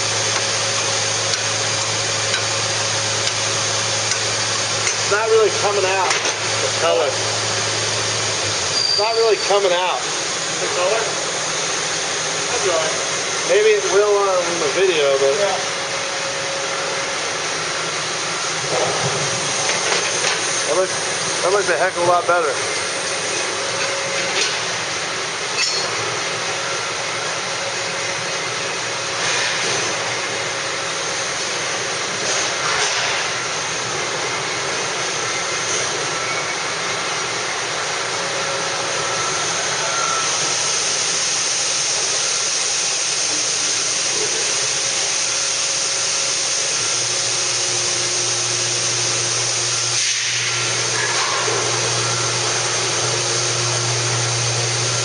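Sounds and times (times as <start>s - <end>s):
factory machinery hiss: 36.7s - 55.0s.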